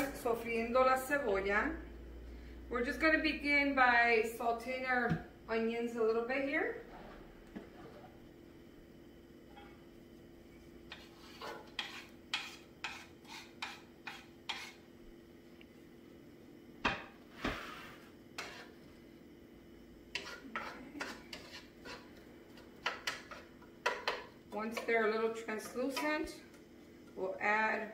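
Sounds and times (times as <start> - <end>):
spoon tapping in frying pan: 22.8 - 24.9.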